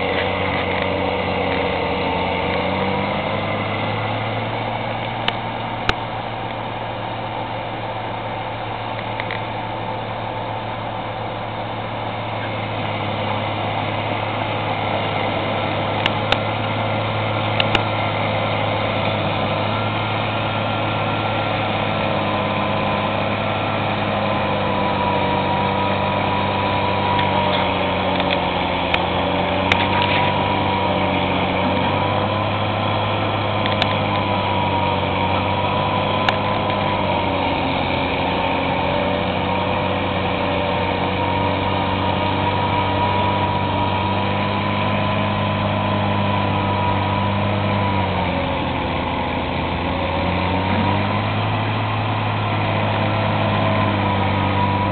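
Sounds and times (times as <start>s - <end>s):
snow blower engine running: 0.0s - 54.9s
steady whine: 0.0s - 54.9s.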